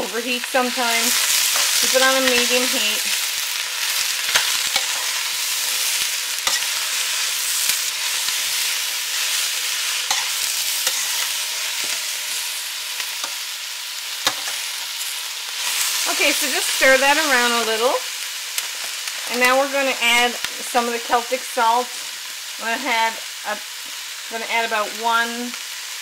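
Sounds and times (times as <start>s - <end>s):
vegetables sizzling in oil: 0.0s - 26.0s
spoon scraping a metal pot: 6.4s - 7.0s, 10.0s - 12.0s.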